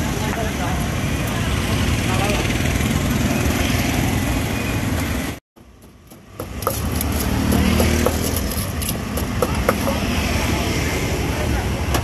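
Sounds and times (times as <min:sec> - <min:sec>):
street traffic hum: 0:00.0 - 0:12.0
wooden pestle knocking in mortar: 0:06.1 - 0:10.0.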